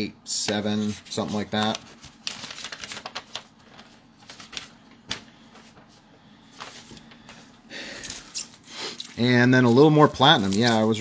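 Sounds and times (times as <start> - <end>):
packaging rustling: 0.8 - 7.3, 10.1 - 11.0.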